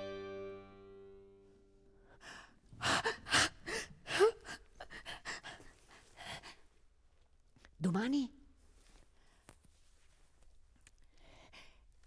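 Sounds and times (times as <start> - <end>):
woman gasping: 2.1 - 6.7.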